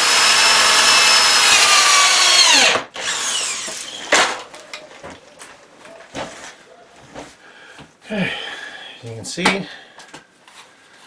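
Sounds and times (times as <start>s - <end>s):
power drill whining: 0.0s - 4.2s.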